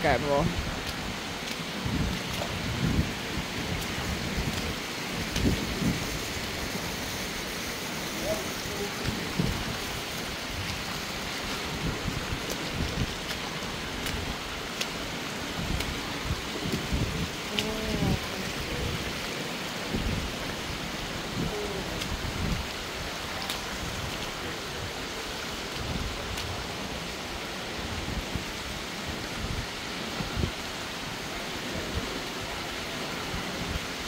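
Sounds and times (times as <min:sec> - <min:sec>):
creek water rushing and splashing: 0:00.0 - 0:34.0
short wordless voice sounds: 0:17.5 - 0:19.0, 0:21.4 - 0:22.0.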